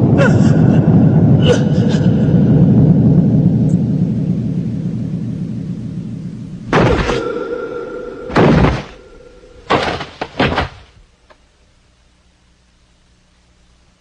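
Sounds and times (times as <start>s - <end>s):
low hush: 0.0s - 11.0s
body crashing onto rocky ground: 8.3s - 9.0s, 9.7s - 11.0s.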